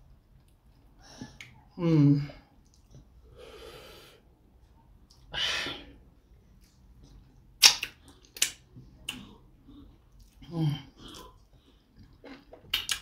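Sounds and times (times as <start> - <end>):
wet lip smacks while chewing: 12.0 - 13.0.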